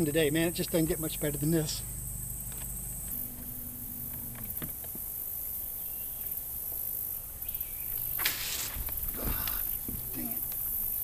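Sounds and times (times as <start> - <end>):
low steady hum: 0.0 - 8.2
insects droning in chorus: 0.0 - 11.0.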